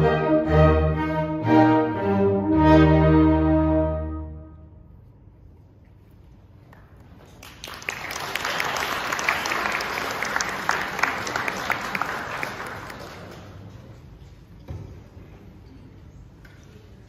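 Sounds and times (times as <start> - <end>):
audience applauding: 7.3 - 13.7.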